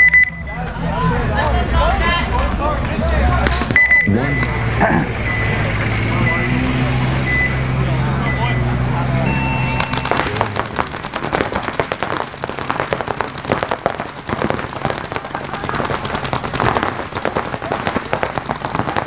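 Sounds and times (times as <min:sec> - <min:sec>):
paintball markers firing rapidly: 0:09.8 - 0:19.0.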